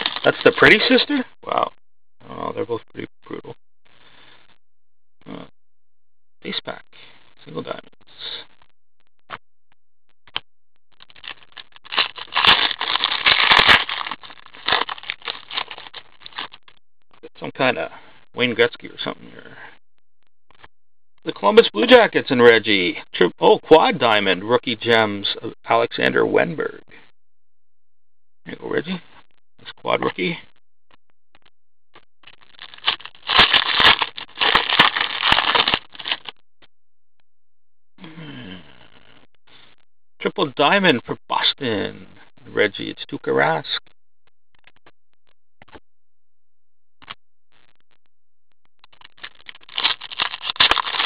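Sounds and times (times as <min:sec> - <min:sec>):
foil wrapper crinkling and tearing: 0:00.0 - 0:00.9, 0:11.0 - 0:16.6, 0:32.5 - 0:36.3, 0:49.0 - 0:51.0.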